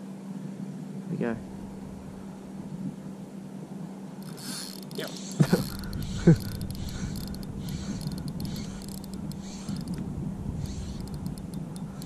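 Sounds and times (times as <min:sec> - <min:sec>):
fishing reel whirring and ticking: 0:04.2 - 0:10.0, 0:10.6 - 0:12.0.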